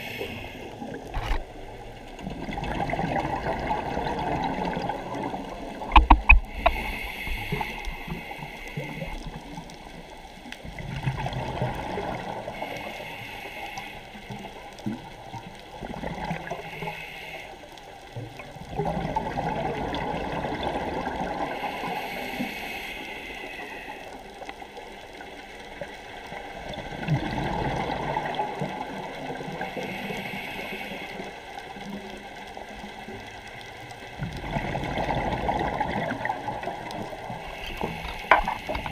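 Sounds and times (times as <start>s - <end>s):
regulator breathing hiss: 0.0s - 0.9s, 6.5s - 9.3s, 12.5s - 14.6s, 16.5s - 17.8s, 21.5s - 24.2s, 29.6s - 31.5s, 37.3s - 38.9s
exhaled bubbles rushing: 0.8s - 6.6s, 10.7s - 12.5s, 18.6s - 21.5s, 26.6s - 28.9s, 34.2s - 38.9s.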